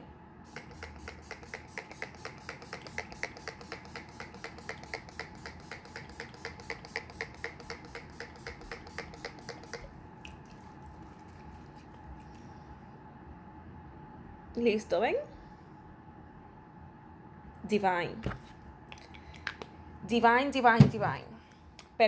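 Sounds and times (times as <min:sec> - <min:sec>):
spray bottle hissing sprays: 0:00.5 - 0:09.9.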